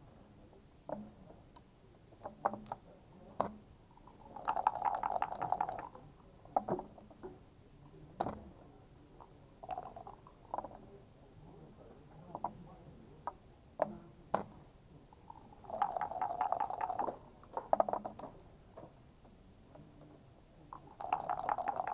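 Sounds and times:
checkers clacking on board: 0:15.7 - 0:18.2, 0:20.8 - 0:21.9.

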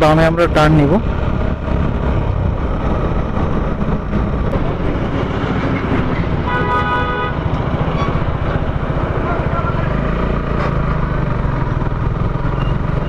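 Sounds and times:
motorcycle engine rumble: 0:00.0 - 0:13.0
vehicle horn blast: 0:06.4 - 0:07.4.

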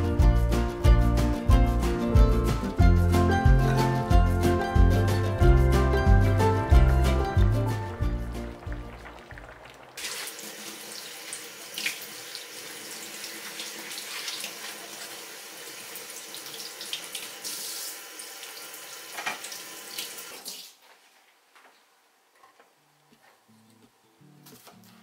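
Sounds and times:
faucet water splashing in sink: 0:08.0 - 0:20.7.

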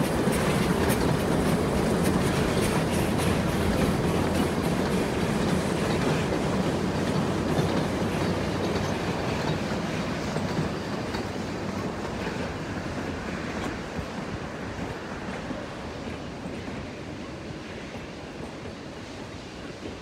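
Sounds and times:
train wheels rumbling on rail: 0:00.0 - 0:20.0.

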